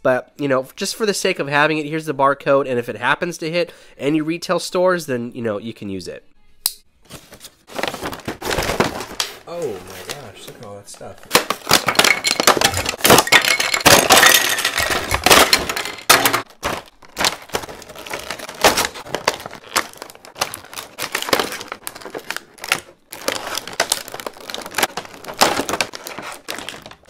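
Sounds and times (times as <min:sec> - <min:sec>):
paper and cardboard rustling: 0:07.0 - 0:27.0
plastic packaging crinkling: 0:07.3 - 0:10.3, 0:11.2 - 0:27.0.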